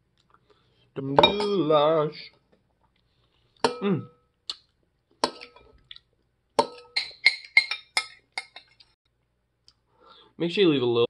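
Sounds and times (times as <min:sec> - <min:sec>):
metal utensil clinking on a bowl: 0:06.6 - 0:08.8.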